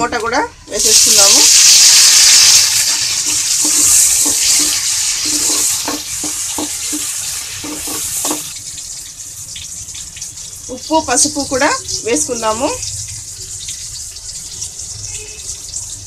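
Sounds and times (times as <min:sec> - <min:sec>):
tomatoes sizzling in hot oil: 0:00.7 - 0:16.0
metal spoon clinking on pan: 0:03.2 - 0:08.5.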